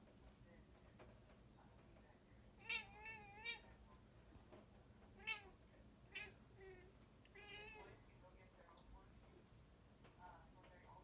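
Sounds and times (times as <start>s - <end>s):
cat chirping: 2.6s - 3.7s.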